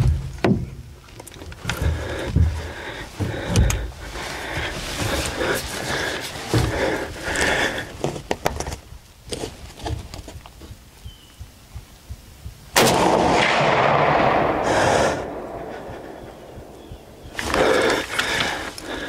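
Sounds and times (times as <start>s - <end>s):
rifle shot: 12.8s - 16.8s.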